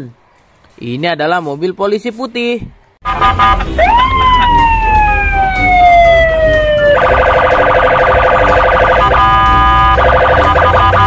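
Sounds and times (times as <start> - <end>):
police siren wailing: 3.1 - 11.0
low rumble: 3.2 - 8.4.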